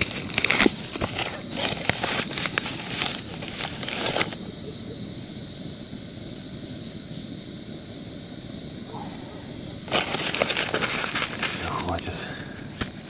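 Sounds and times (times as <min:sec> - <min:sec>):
crinkling handling noises: 0:00.0 - 0:04.4, 0:09.8 - 0:13.0
faint hiss with high tones: 0:00.0 - 0:13.0.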